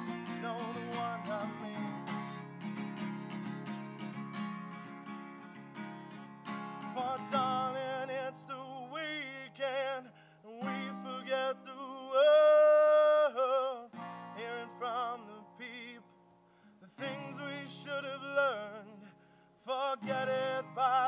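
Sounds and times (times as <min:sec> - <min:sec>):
man singing: 0:00.0 - 0:02.6, 0:06.8 - 0:16.1, 0:16.8 - 0:21.0
acoustic guitar strummed: 0:00.0 - 0:21.0.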